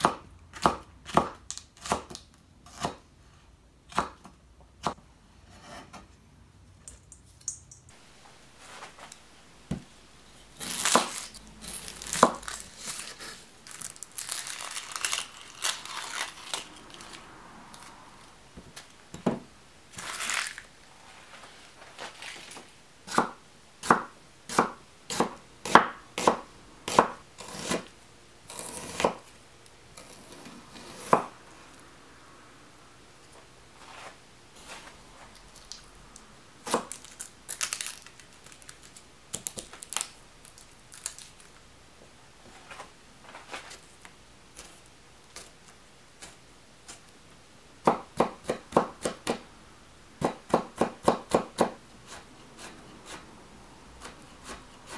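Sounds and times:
knife chopping on wooden board: 0.0s - 3.0s, 23.1s - 27.9s, 28.5s - 29.2s, 50.2s - 53.2s.

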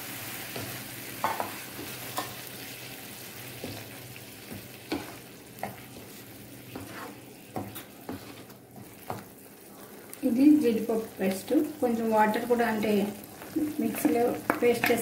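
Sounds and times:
food sizzling in a frying pan: 0.0s - 15.0s
spoon knocking on pan: 0.6s - 2.4s
spoon stirring and scraping: 4.5s - 10.1s.

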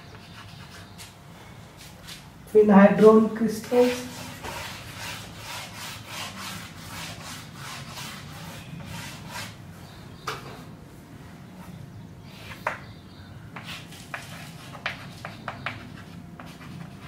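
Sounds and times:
chalk scratching on blackboard: 0.1s - 1.1s, 3.7s - 9.6s, 13.6s - 17.0s
chalk tap: 13.6s - 16.6s.

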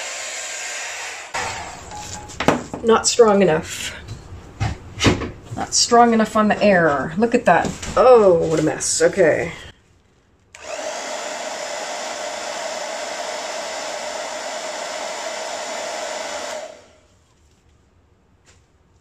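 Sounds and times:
hair dryer running: 10.6s - 17.1s.

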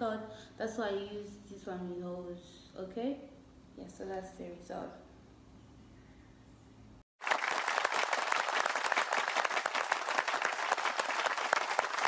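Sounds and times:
crowd clapping: 7.2s - 12.0s.

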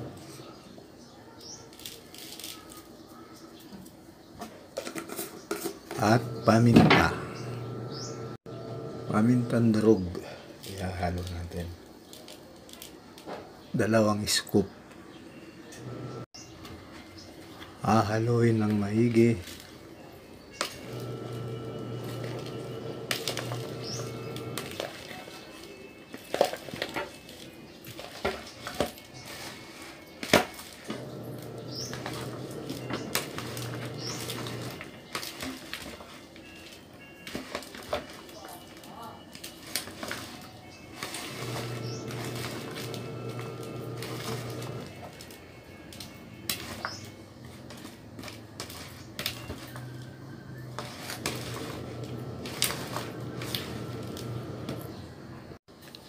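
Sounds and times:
metal spoon scraping plastic bowl: 4.8s - 8.1s, 20.6s - 25.5s, 28.0s - 36.1s, 39.7s - 45.4s, 50.6s - 55.0s
steady low hum: 6.2s - 9.5s.

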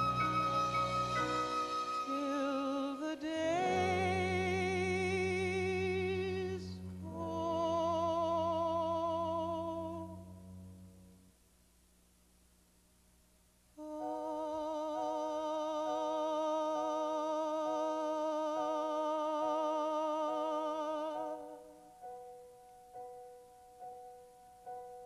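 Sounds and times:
soft keyboard chords: 0.0s - 11.2s, 13.8s - 25.0s
woman singing wordless note: 1.5s - 10.4s, 13.8s - 21.7s.

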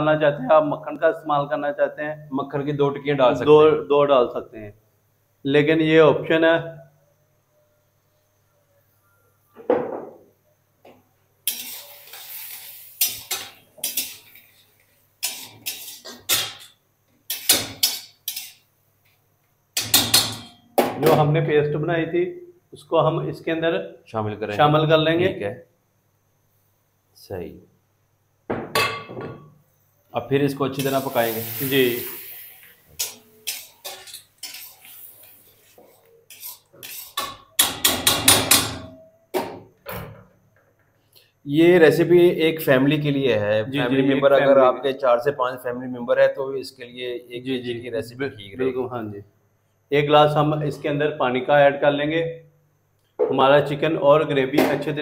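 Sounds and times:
metal spatula scraping a wok: 11.4s - 16.7s, 17.3s - 18.6s, 33.0s - 37.7s.

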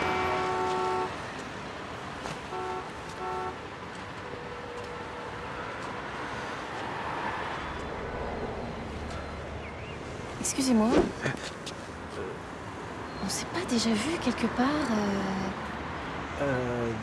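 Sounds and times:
vehicle horn honks: 0.0s - 1.2s, 2.5s - 3.6s
passing cars: 0.0s - 17.0s.

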